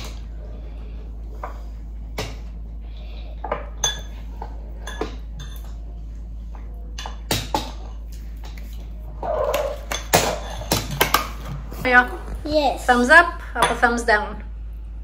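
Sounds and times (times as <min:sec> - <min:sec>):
metal spoons clinking against dishes: 0:03.7 - 0:05.8.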